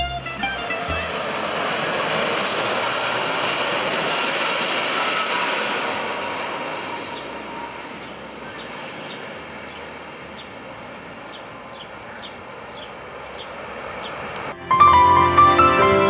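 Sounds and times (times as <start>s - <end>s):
jet engines rushing: 0.0s - 16.0s
bird chirps: 7.0s - 14.2s.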